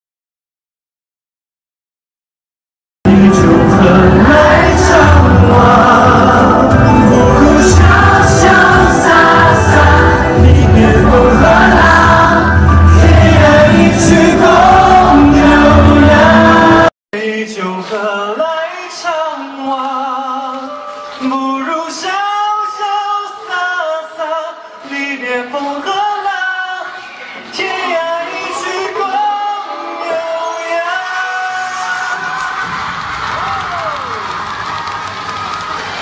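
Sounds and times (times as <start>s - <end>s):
loud backing music: 3.1s - 16.9s
men singing: 3.1s - 26.8s
man singing into a microphone: 3.1s - 32.6s.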